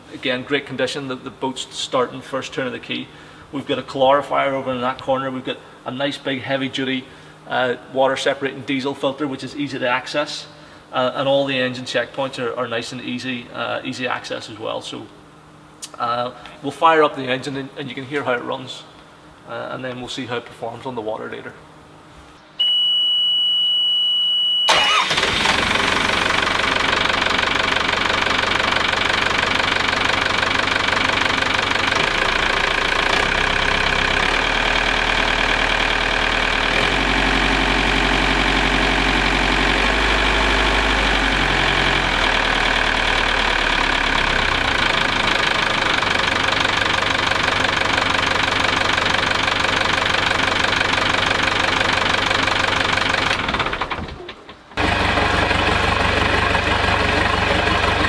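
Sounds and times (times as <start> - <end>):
steady high beep: 22.6 - 24.7
boat engine starting and idling: 24.7 - 58.0.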